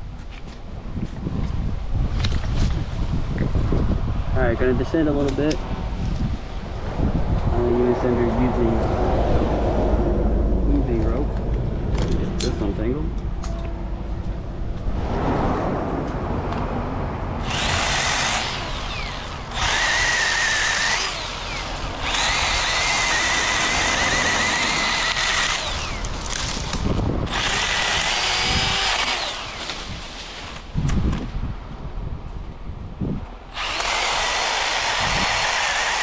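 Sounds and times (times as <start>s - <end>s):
power saw cutting wood: 17.4s - 30.0s, 33.5s - 36.0s.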